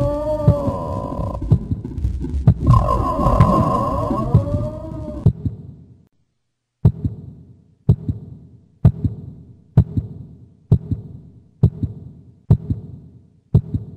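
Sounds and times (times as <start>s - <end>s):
heartbeat thumps: 0.4s - 5.7s, 6.8s - 13.9s.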